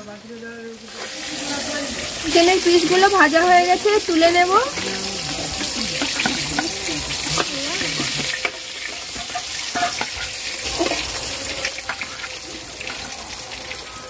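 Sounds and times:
chicken deep-frying in oil: 0:00.0 - 0:14.0.

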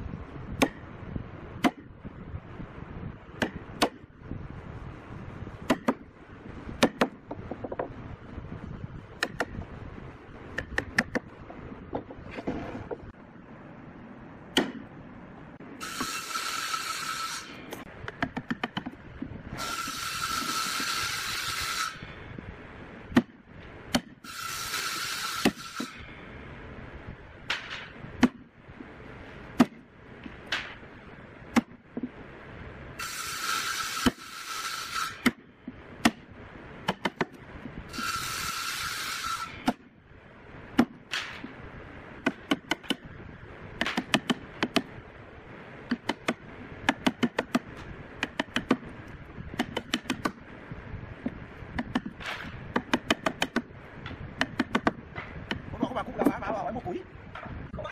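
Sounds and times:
chisel knocking and scraping wood: 0:06.8 - 0:07.9.

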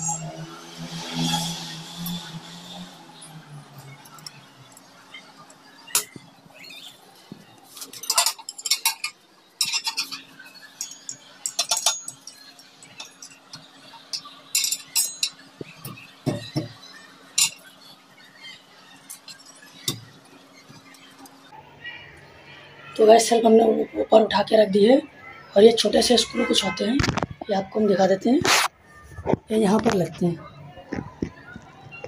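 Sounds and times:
glass shelf clinking on metal: 0:07.8 - 0:17.7.

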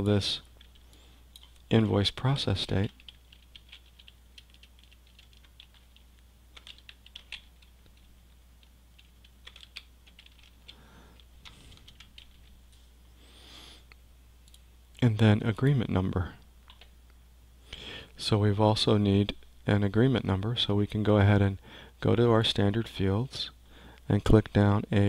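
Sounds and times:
computer keyboard typing: 0:00.5 - 0:01.7, 0:02.7 - 0:12.5.

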